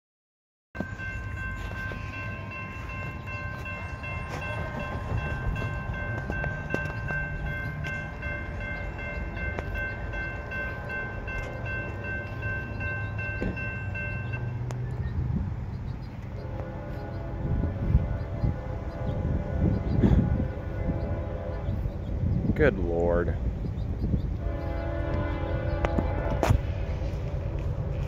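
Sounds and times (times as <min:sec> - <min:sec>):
crossing warning bell ringing: 0:00.8 - 0:22.4.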